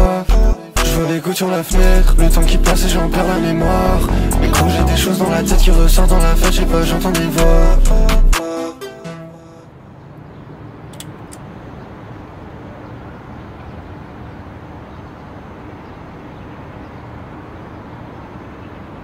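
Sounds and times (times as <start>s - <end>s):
urban ambience rumble: 0.0s - 8.4s, 9.6s - 19.0s
faint hum: 1.7s - 8.4s.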